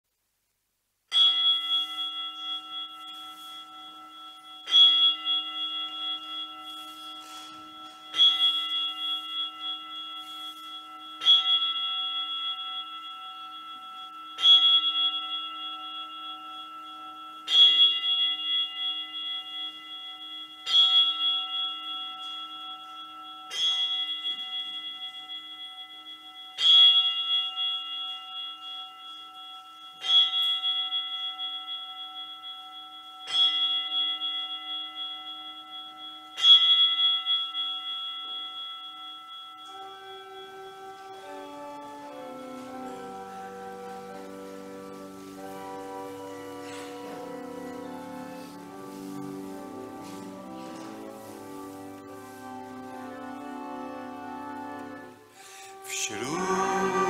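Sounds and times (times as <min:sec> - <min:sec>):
bell tolling: 0:55.4 - 0:57.0.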